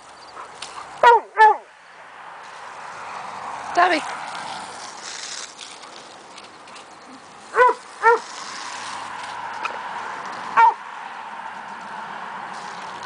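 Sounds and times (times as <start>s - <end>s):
dog barking: 0.4s - 1.7s, 7.6s - 8.3s, 10.6s - 10.8s
garden hose spraying water: 2.3s - 10.8s, 12.4s - 13.0s.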